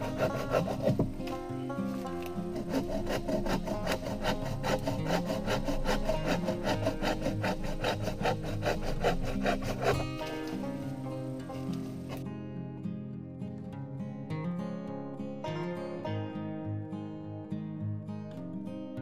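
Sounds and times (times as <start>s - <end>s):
hand saw cutting branch: 0.0s - 12.2s
background music: 0.0s - 19.0s.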